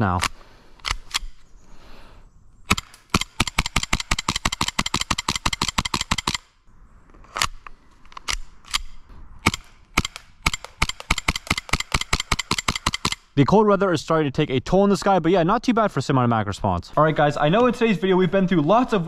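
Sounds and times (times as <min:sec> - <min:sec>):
pistol slide cycling: 0:02.7 - 0:06.5, 0:07.2 - 0:13.3.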